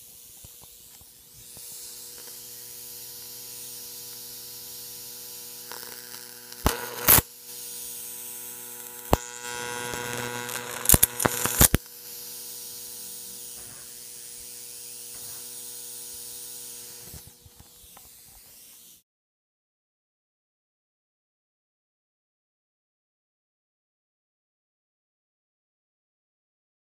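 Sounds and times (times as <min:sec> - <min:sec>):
high-voltage buzzing hum: 0:00.0 - 0:18.7
corona discharge hiss: 0:00.0 - 0:19.0
faint electric crackles: 0:00.0 - 0:19.0
electric arc snaps: 0:00.2 - 0:19.0.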